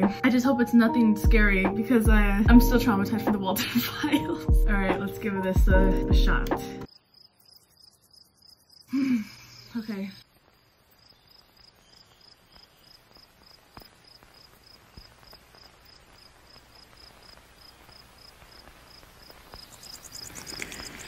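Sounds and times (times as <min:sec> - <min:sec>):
faint cricket chirping: 0:06.9 - 0:21.0
low hiss: 0:08.9 - 0:21.0.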